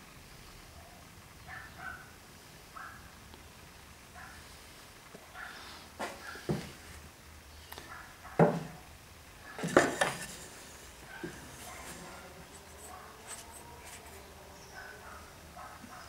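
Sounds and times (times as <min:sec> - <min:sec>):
wooden board knocking: 0:08.4 - 0:08.8, 0:09.6 - 0:10.3.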